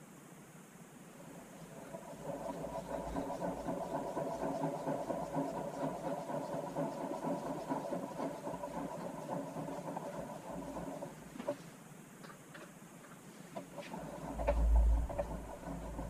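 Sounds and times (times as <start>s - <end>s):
power feed motor whirring: 1.4s - 11.0s, 13.8s - 16.0s.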